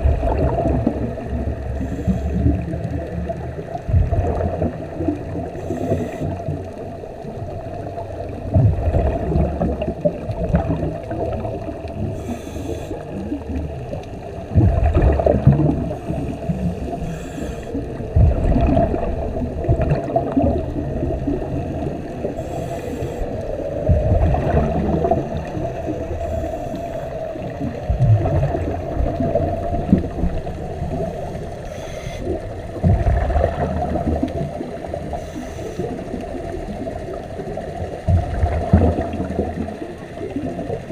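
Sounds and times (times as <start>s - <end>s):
gurgle of exhaled bubbles: 0.0s - 40.9s
muffled underwater hum: 0.0s - 40.9s
regulator inhalation hiss: 5.6s - 6.4s, 12.2s - 13.2s, 15.9s - 17.8s, 22.3s - 23.4s, 26.2s - 27.2s, 31.6s - 32.4s, 35.1s - 36.0s.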